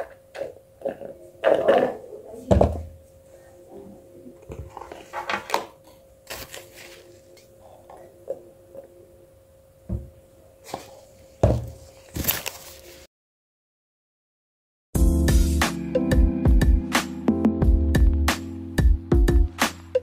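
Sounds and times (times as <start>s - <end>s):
faint steady hum: 0.0s - 13.1s.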